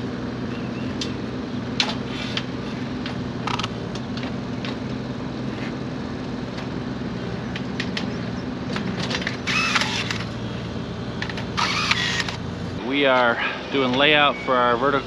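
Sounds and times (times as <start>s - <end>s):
engine humming: 0.0s - 15.0s
scraping squeal: 13.2s - 15.0s.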